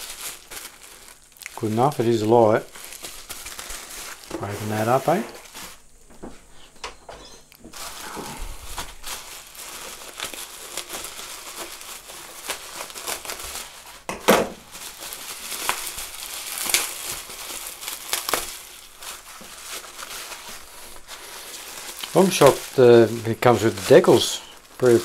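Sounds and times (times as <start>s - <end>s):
bubble wrap crinkling: 0.0s - 6.7s, 7.4s - 25.0s
scissors cutting bubble wrap: 7.7s - 25.0s.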